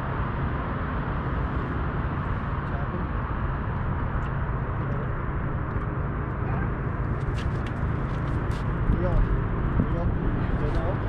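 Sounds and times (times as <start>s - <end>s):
boat motor rumbling: 0.0s - 11.0s.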